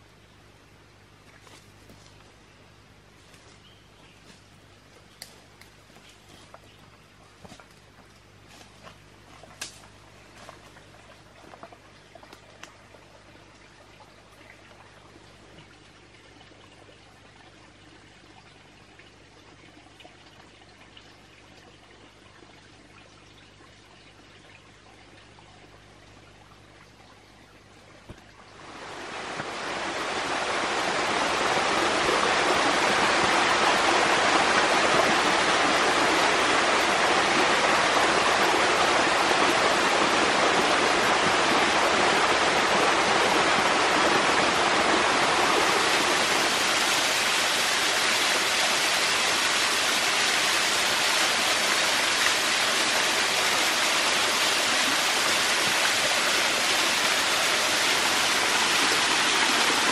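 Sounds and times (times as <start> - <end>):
stream rushing over rocks: 28.5 - 59.9.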